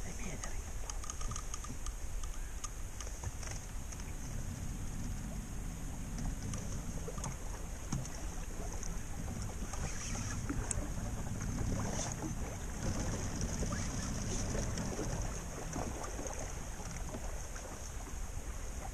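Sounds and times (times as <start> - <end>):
water lapping against boat hull: 0.0 - 18.9
wind rumble on microphone: 0.0 - 18.9
faint clicks: 0.3 - 4.4, 6.1 - 10.8.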